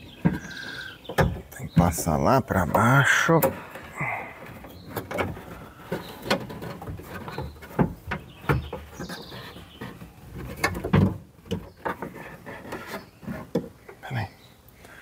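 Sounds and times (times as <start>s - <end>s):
hands working inside car door: 2.6s - 13.8s.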